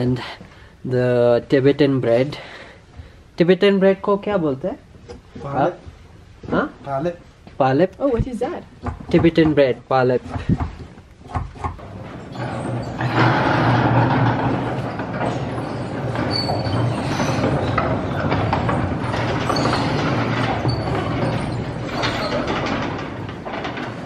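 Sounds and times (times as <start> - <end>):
prayer wheels rumbling and rattling: 11.5 - 24.0
short high squeaks: 14.8 - 18.2, 19.4 - 22.6.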